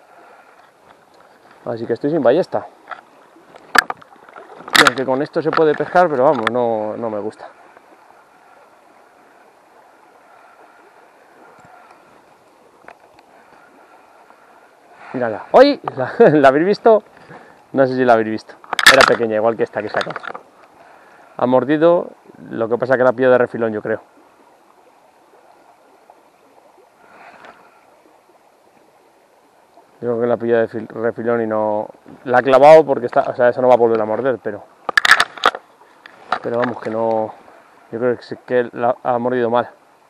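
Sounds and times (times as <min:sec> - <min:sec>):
river water rushing: 0:00.0 - 0:21.6.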